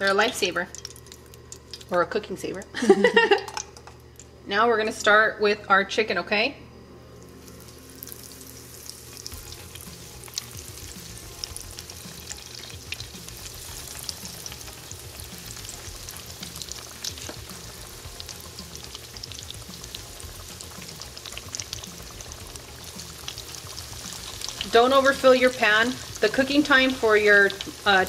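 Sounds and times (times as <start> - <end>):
chicken deep-frying in hot oil: 0.0 - 2.7, 7.4 - 28.0
oil popping and crackling: 0.0 - 2.7, 3.3 - 4.3, 7.4 - 28.0.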